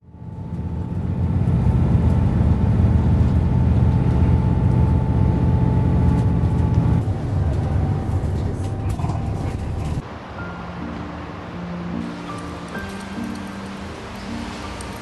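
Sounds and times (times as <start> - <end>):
vehicle engine running: 0.0 - 10.0.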